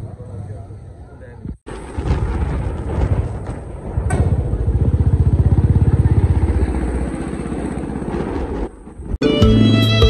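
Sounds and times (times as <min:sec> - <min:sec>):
motorcycle engine running: 0:04.1 - 0:08.4.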